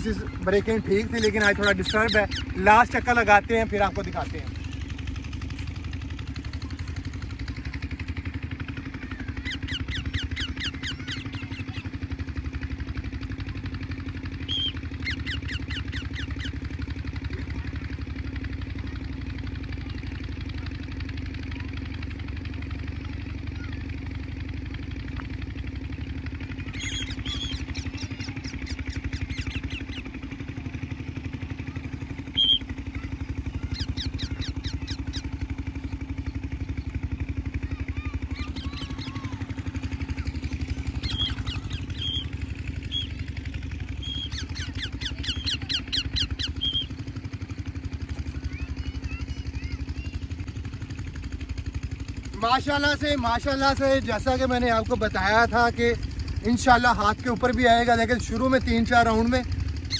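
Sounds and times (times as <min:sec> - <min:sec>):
engine droning: 0:00.0 - 0:59.9
rapid high-pitched pulsing: 0:32.2 - 0:35.9, 0:38.5 - 0:47.2.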